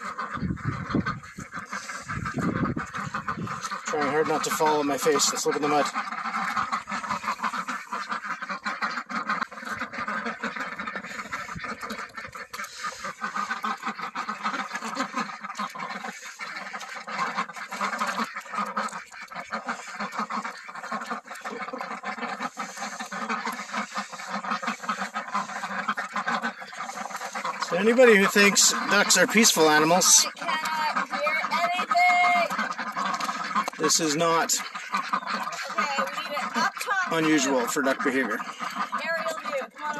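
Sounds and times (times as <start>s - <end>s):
bills dabbling in wet feed: 0.0s - 39.9s
ducks quacking: 0.0s - 39.9s.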